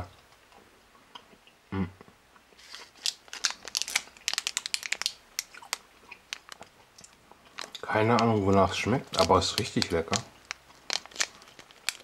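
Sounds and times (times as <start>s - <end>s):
plastic wrapper crackling: 2.6s - 12.0s.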